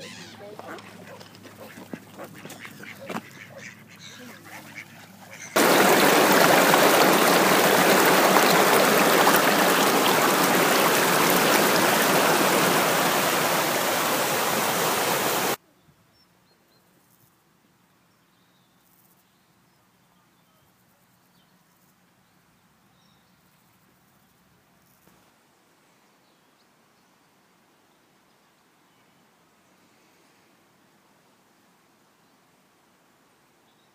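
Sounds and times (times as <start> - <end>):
water pouring over a weir: 5.6 - 15.6.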